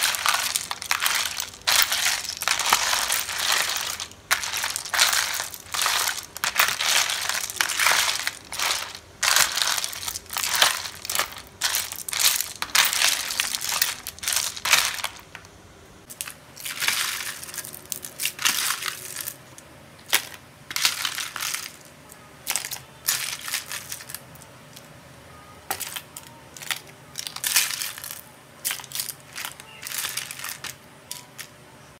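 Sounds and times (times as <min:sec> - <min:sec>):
ladle stirring ice in bowl: 0:00.0 - 0:15.3.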